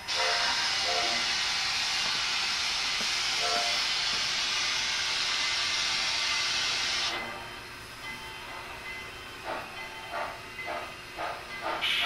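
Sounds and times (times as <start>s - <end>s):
steady hiss of escaping steam: 0.0s - 7.2s.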